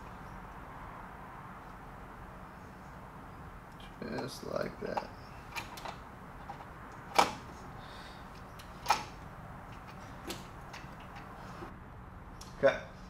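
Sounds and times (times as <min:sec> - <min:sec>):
sharp metallic clicks: 0:03.7 - 0:07.6, 0:08.3 - 0:11.4.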